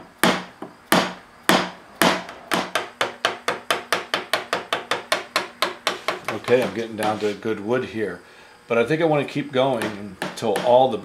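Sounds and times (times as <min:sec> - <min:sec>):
hammer striking chisel: 0:00.0 - 0:07.3, 0:09.8 - 0:11.0.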